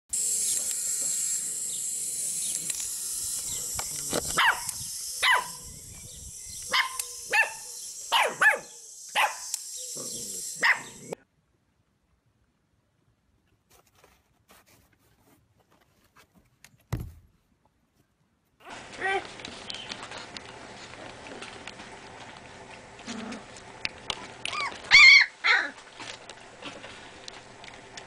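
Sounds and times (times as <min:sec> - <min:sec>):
steady high hiss: 0:00.1 - 0:11.2
puppy yapping: 0:04.4 - 0:05.6, 0:06.7 - 0:09.4, 0:10.6 - 0:11.2, 0:24.5 - 0:25.8.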